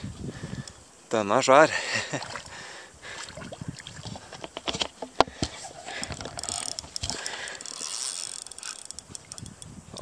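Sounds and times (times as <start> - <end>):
fishing reel clicking and ratcheting: 5.8 - 10.0.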